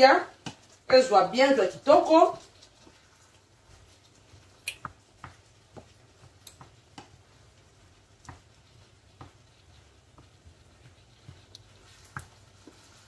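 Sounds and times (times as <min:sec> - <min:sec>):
wooden spatula knocking on pan: 0:08.1 - 0:11.4.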